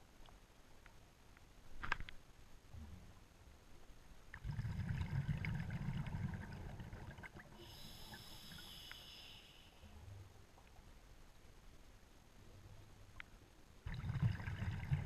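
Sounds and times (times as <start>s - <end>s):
bubbling of exhaled air: 4.4s - 9.4s, 13.9s - 15.0s
regulator inhalation hiss: 7.6s - 9.9s
small ticks: 8.6s - 9.4s.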